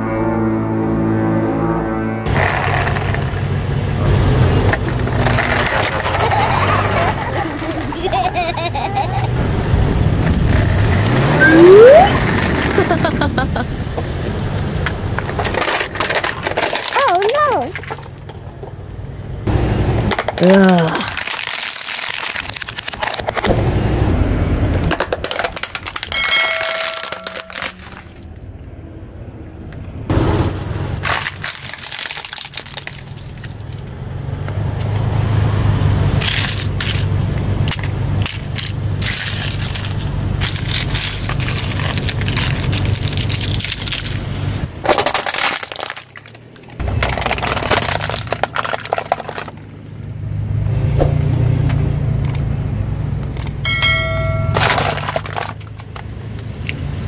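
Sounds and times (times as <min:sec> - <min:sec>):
plastic toys cracking under tyre: 0:04.6 - 0:08.0, 0:14.4 - 0:18.4, 0:20.0 - 0:23.6, 0:24.6 - 0:28.2, 0:31.0 - 0:33.8, 0:36.2 - 0:50.1, 0:54.6 - 0:56.8.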